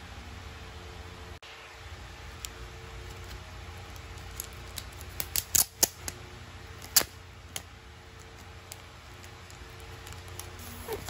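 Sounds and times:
plastic card sleeve clicking and crackling: 3.0 - 6.2.

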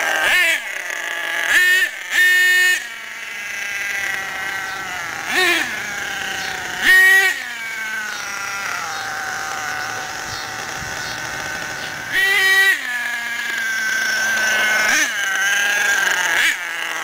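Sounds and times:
nitro engine revving: 0.0 - 17.0.

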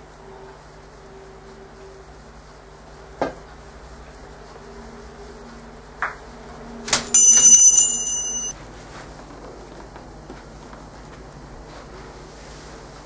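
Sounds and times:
high ringing tone: 7.2 - 8.6.

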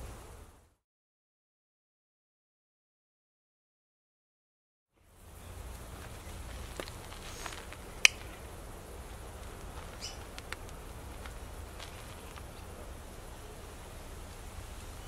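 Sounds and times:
steady low rumble: 5.0 - 15.0.

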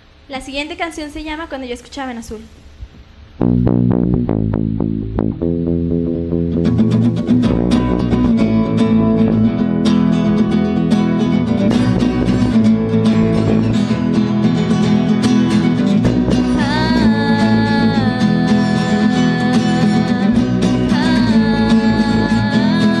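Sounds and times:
acoustic guitars picking: 3.4 - 23.0
bass guitar: 3.4 - 23.0
woman singing: 16.2 - 23.0.

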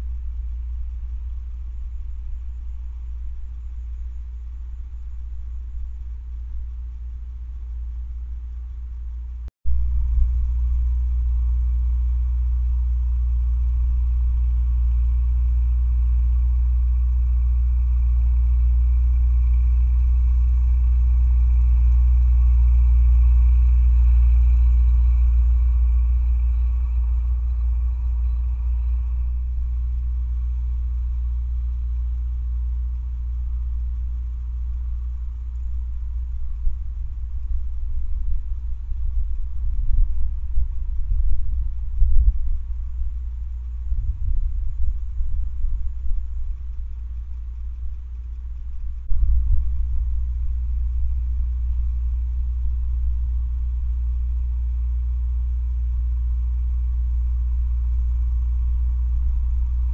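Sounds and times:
tractor engine drone: 0.0 - 59.9.

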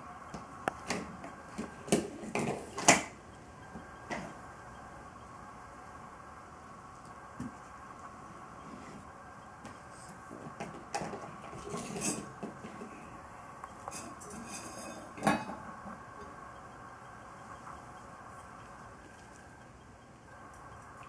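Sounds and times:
metal pot clinking and scraping: 13.9 - 15.6.

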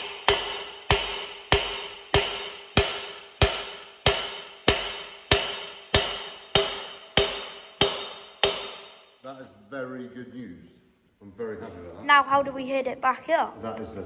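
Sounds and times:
hammer blows on metal: 0.0 - 9.1.

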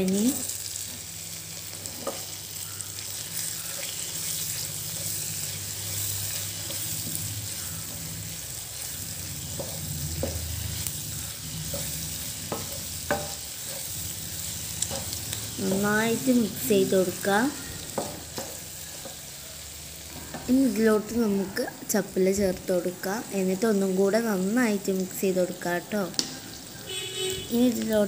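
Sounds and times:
food sizzling in a pan: 0.0 - 28.0
spatula scraping a pan: 1.7 - 16.0.

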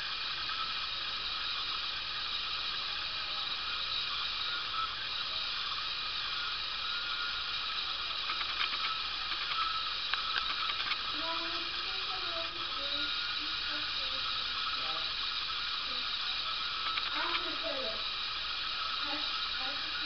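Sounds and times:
steady background hiss: 0.0 - 20.0
faint ticks: 5.6 - 20.0.

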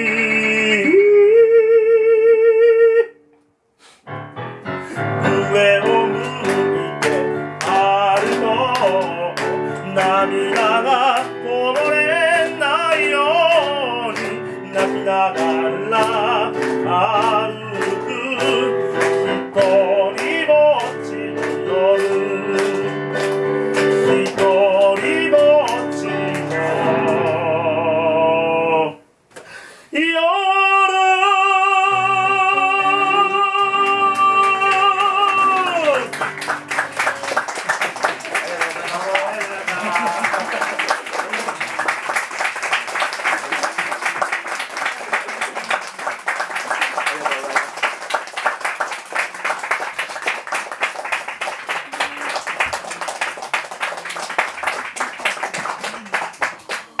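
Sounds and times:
man singing ballad: 0.0 - 3.2, 4.9 - 29.1, 29.9 - 36.2
piano chords: 4.1 - 29.0, 31.4 - 44.6
audience applauding: 5.0 - 27.4, 33.3 - 57.0.

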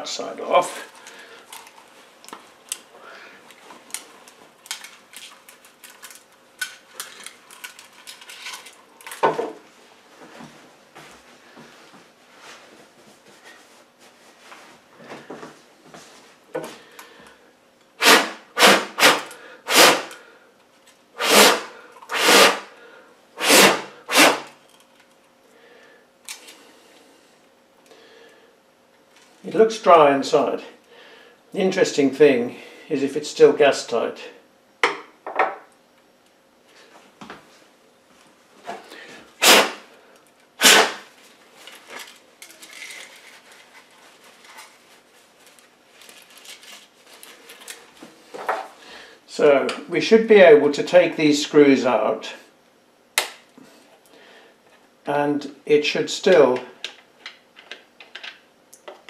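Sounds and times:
handling noises: 40.2 - 48.8
paper towel rustling: 42.8 - 48.0.

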